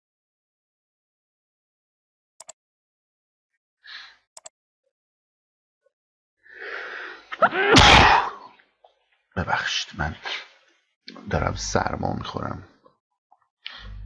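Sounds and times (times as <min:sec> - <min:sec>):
man sneezing: 0:07.4 - 0:08.5.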